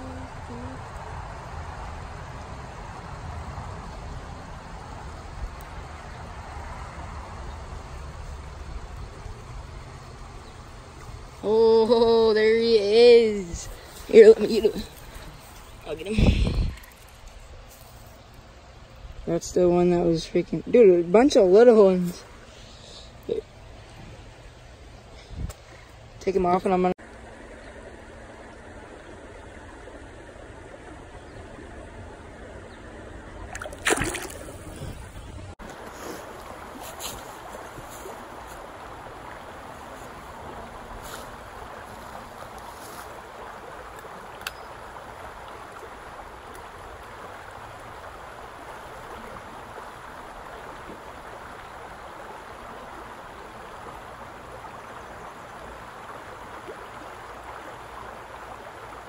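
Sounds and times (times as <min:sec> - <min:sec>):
stream running over riffles: 0:00.0 - 0:59.0
loud splash in water: 0:33.5 - 0:35.1.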